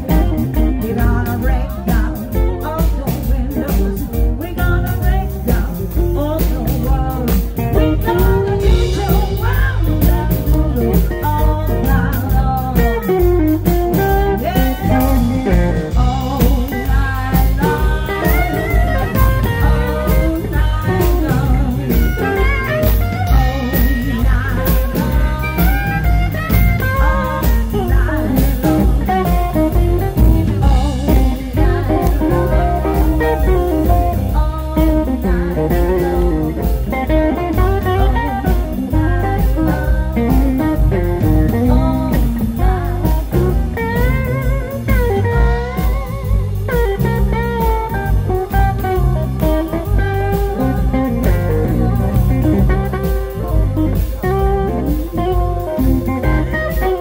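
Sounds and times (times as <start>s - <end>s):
drum kit beat: 0.0s - 57.0s
electric guitar bending notes: 0.0s - 57.0s
woman singing: 0.0s - 57.0s.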